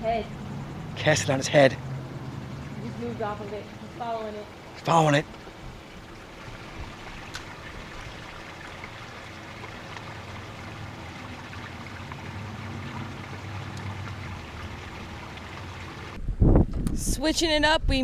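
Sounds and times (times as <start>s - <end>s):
water lapping against boat hull: 4.5s - 16.2s.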